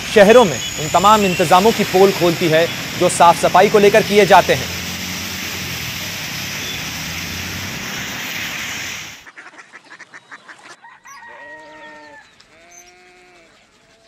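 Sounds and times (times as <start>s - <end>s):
tyres splashing through water: 0.0s - 9.3s.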